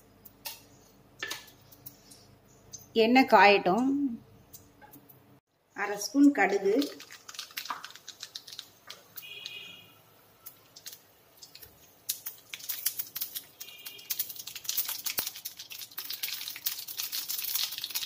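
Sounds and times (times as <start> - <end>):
mustard seeds spluttering in oil: 6.1 - 18.0.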